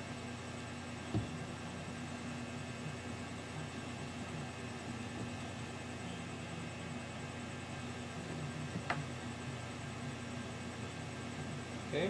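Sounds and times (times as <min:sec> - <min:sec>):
faint low hum: 0:00.0 - 0:12.0.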